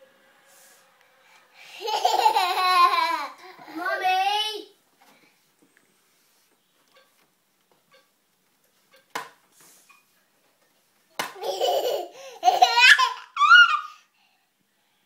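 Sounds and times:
toddler giggling: 0:01.7 - 0:03.6, 0:11.4 - 0:14.0.

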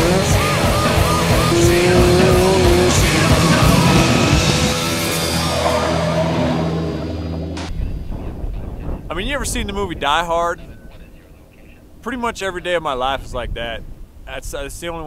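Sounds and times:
vehicle engines revving: 0:00.0 - 0:07.7
soundtrack music: 0:00.6 - 0:07.7.

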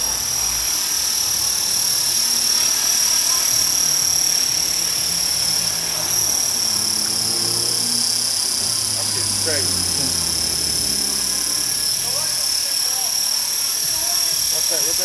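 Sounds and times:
rc helicopter rotor whine: 0:00.0 - 0:15.0.

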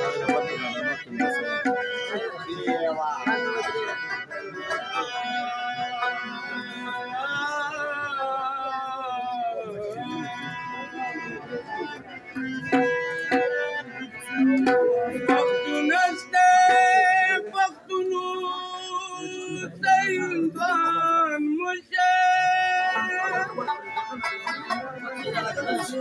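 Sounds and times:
plucked lute: 0:00.0 - 0:07.1, 0:09.8 - 0:17.7, 0:22.3 - 0:26.0
man singing with vibrato: 0:00.0 - 0:26.0.

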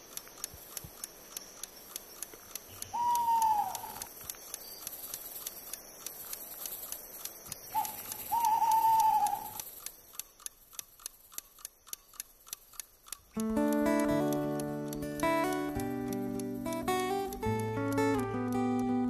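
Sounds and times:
clock ticking: 0:00.0 - 0:19.0
animal-like call: 0:02.9 - 0:04.1, 0:07.7 - 0:09.6.

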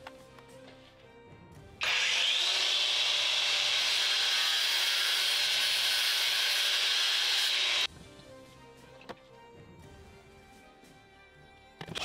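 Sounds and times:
power tool running: 0:01.8 - 0:07.9.

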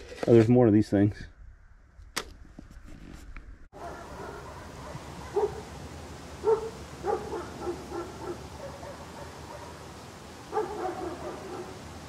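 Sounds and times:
dog barking: 0:03.7 - 0:05.7, 0:06.4 - 0:09.9, 0:10.5 - 0:11.8
steady hiss: 0:03.8 - 0:12.0.

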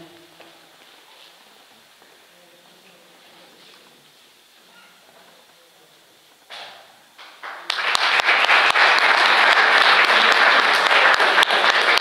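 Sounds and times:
audience applauding: 0:07.2 - 0:12.0.

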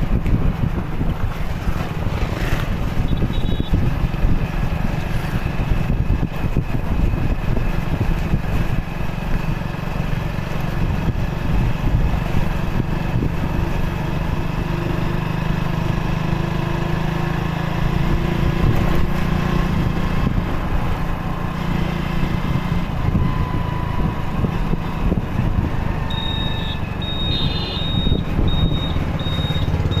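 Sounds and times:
wind rumbling on microphone: 0:00.0 - 0:15.4, 0:16.8 - 0:30.0
motorcycle engine running: 0:00.0 - 0:30.0
high electronic beep: 0:26.1 - 0:30.0.

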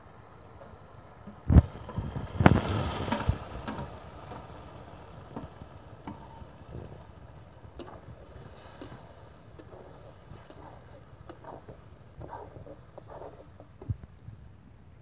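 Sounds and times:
oil sizzling: 0:00.5 - 0:14.0
metal spatula knocking and scraping: 0:09.6 - 0:14.0.

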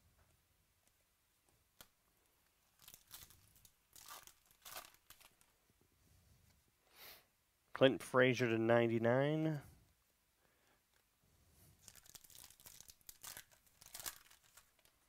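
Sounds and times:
foil wrapper tearing and crinkling: 0:02.8 - 0:05.5, 0:11.8 - 0:15.0.

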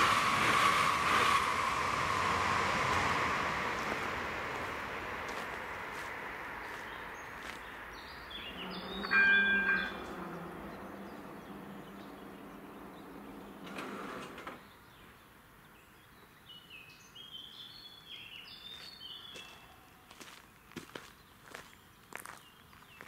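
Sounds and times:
birds chirping: 0:03.8 - 0:23.0
barrier motor humming: 0:08.4 - 0:14.6.

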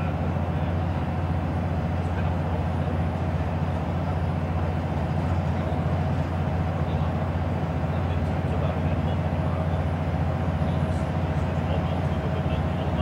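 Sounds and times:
bus engine drone: 0:00.0 - 0:13.0
road and tyre noise: 0:00.0 - 0:13.0.

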